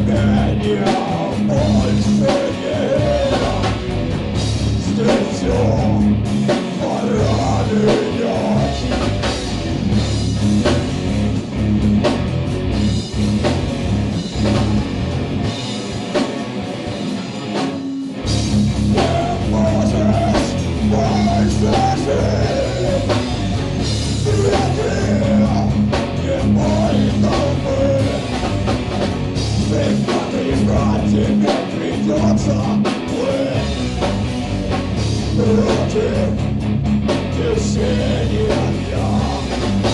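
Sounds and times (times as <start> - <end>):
person singing: 0.0 - 3.9, 4.8 - 9.1, 18.9 - 23.6, 24.2 - 28.4, 29.6 - 34.0, 35.1 - 36.5, 37.2 - 39.9
drum kit: 0.0 - 39.9
electric guitars: 0.0 - 39.9.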